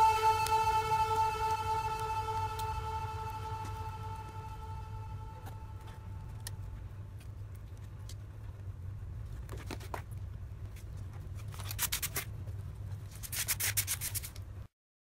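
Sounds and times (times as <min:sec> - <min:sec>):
steady low hum: 0:00.0 - 0:07.5.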